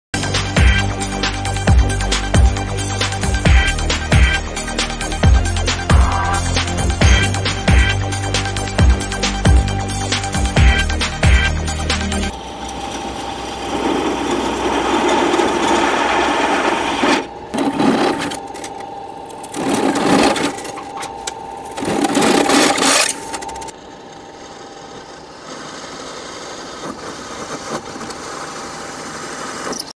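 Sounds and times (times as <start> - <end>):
drill motor whine: 0.5 - 29.9
drill bit grinding through metal: 8.9 - 29.9.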